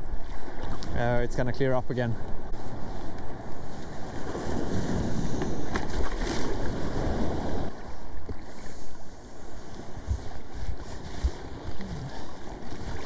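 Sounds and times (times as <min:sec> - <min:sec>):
wind buffeting microphone: 0:02.0 - 0:07.8, 0:09.3 - 0:13.0
sea water sloshing around legs: 0:05.6 - 0:13.0.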